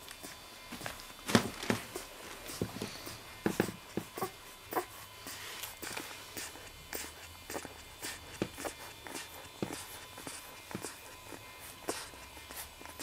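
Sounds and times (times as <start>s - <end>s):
puppies suckling clicks and smacks: 0.0s - 1.2s, 3.8s - 13.0s.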